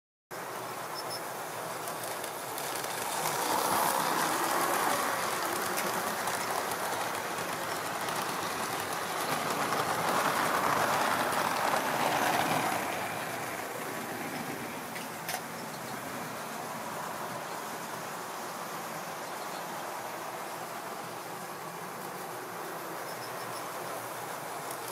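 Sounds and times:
model train wheels rattling: 1.0s - 15.8s.

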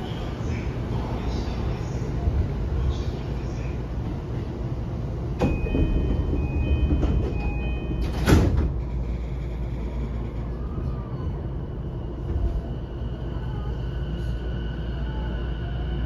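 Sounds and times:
low steady train hum: 0.0s - 16.0s
high beeping door chime: 5.4s - 8.3s
sliding doors shutting with thump: 5.4s - 8.8s.

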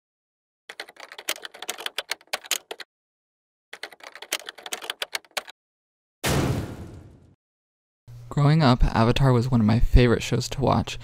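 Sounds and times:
rapid keyboard typing clicks: 0.7s - 2.9s, 3.8s - 5.5s.

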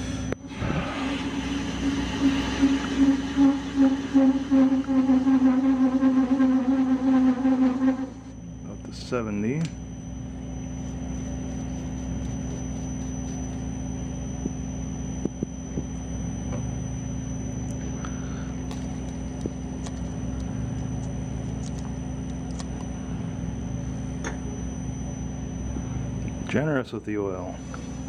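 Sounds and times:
metal lathe humming: 0.0s - 28.0s
tool cutting spinning steel: 0.4s - 8.3s.

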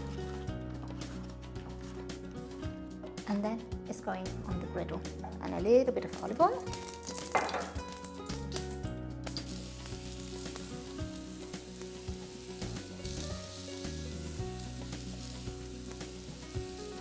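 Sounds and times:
vegetables sizzling on a griddle: 6.7s - 8.6s, 9.2s - 17.0s.

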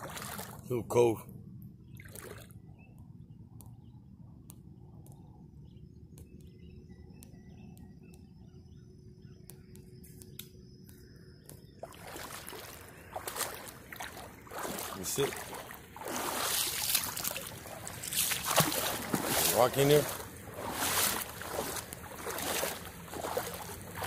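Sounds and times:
faint bird chirps: 1.8s - 15.7s.

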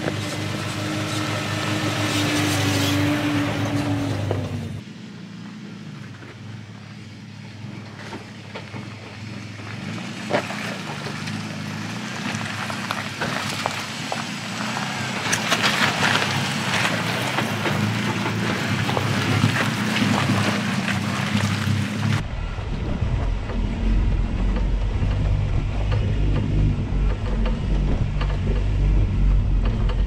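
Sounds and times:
off-road vehicle engine running: 0.0s - 30.0s
tyres crunching over stones: 8.0s - 22.2s.

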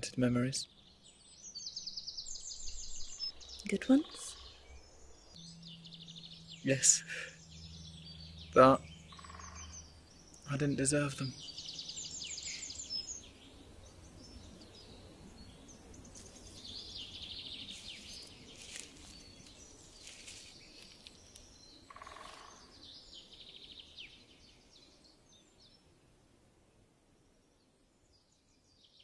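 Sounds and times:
birds chirping in rapid trills: 0.2s - 26.0s
low hum: 4.3s - 21.3s.

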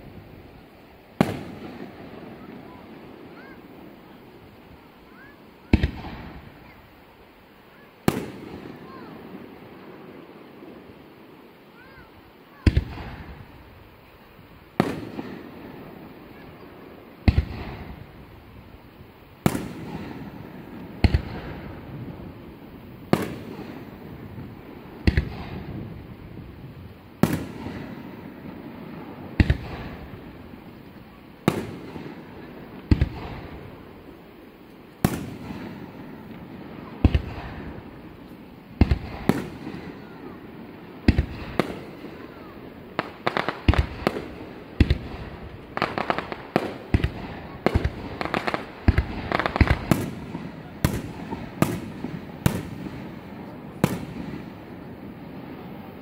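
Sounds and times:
firework shells bursting: 41.0s - 55.3s.

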